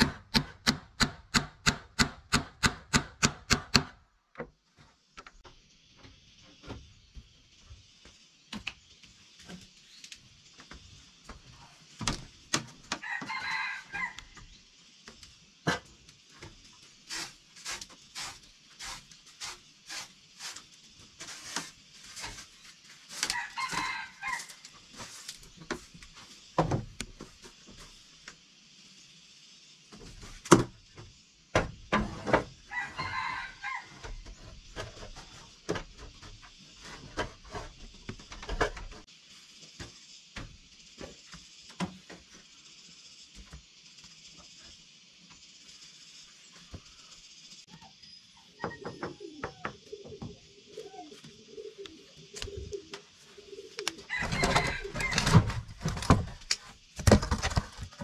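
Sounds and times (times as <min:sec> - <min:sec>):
tool striking wood: 0:00.0 - 0:04.0
steady high hiss: 0:00.9 - 0:48.6, 0:49.7 - 0:57.0
rooster crowing: 0:13.0 - 0:14.4, 0:23.2 - 0:24.6, 0:32.7 - 0:34.2, 0:53.8 - 0:55.5.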